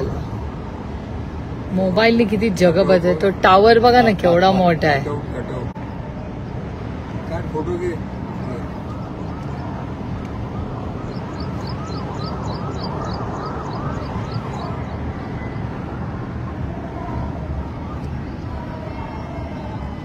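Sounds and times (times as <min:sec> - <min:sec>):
vehicle and road rumble: 0:00.0 - 0:20.0
wavering siren: 0:08.0 - 0:20.0.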